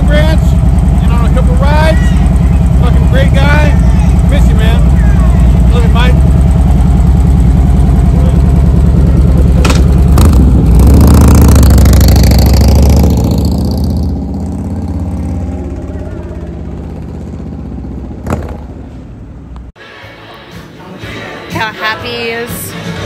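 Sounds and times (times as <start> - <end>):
motorcycle engine pulling away: 0.0 - 19.5.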